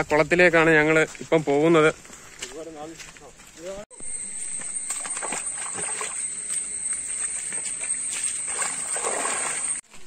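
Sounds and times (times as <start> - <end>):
high-pitched buzz: 3.9 - 9.8
feet splashing through water: 4.8 - 10.0.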